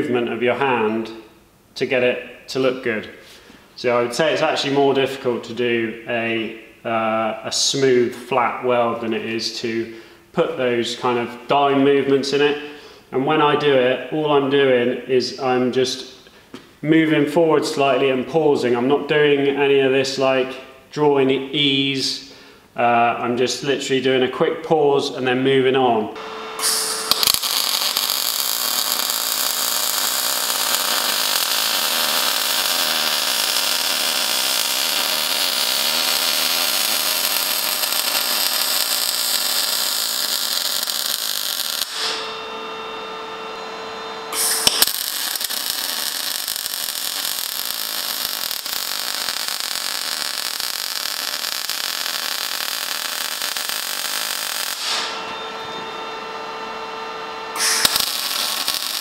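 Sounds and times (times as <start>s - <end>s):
steady hum: 26.1s - 59.0s
welding arc hissing: 26.6s - 42.3s, 44.3s - 55.3s, 57.5s - 59.0s.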